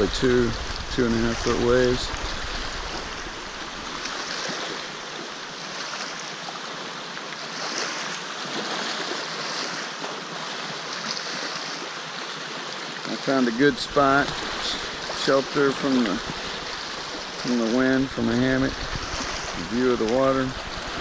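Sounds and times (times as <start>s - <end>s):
waves splashing on rocky shore: 0.0s - 21.0s.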